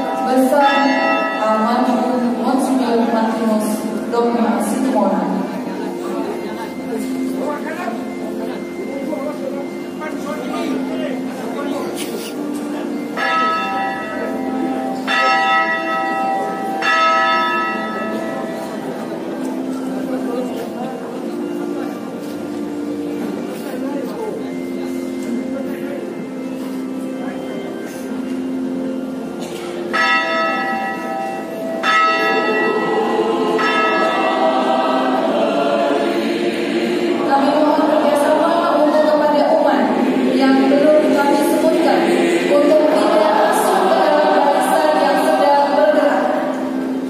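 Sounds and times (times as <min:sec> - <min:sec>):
church bell tolling: 0:00.0 - 0:47.0
choir singing: 0:31.8 - 0:47.0.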